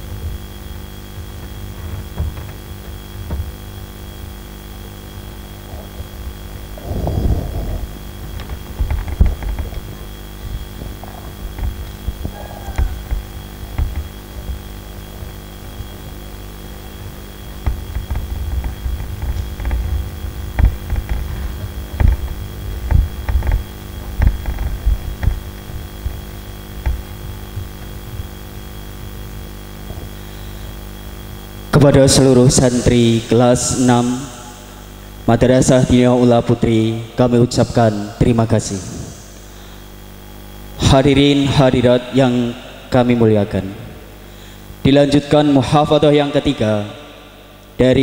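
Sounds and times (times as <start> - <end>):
electrical hum: 0.0 - 48.0
footsteps thudding on stage: 6.9 - 15.4, 17.5 - 29.2.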